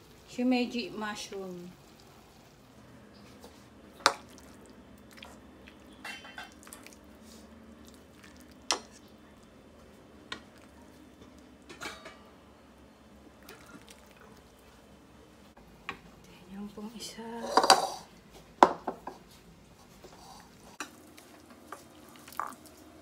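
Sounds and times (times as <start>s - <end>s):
liquid trickling: 21.0s - 22.9s.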